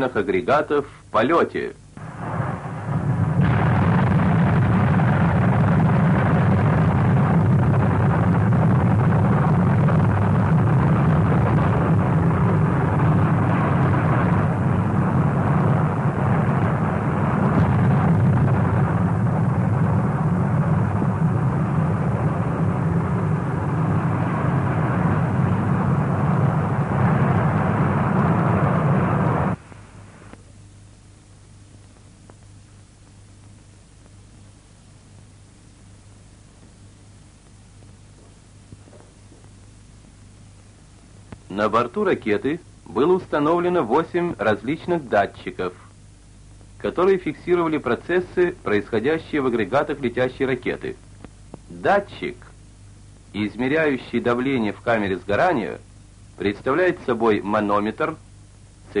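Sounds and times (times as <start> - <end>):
deep roar of rocket engine: 2.0 - 29.6.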